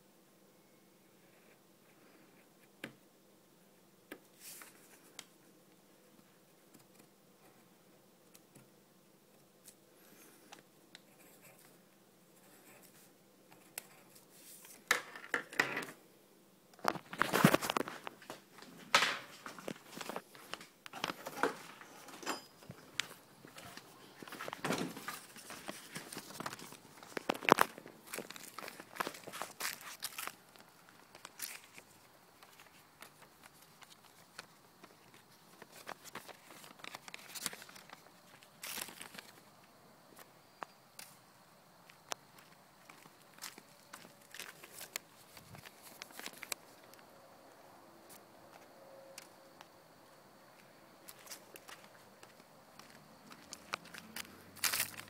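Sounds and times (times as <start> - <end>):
paper rustling and crinkling: 4.3 - 5.3, 16.8 - 39.4, 42.9 - 47.0, 51.1 - 55.0.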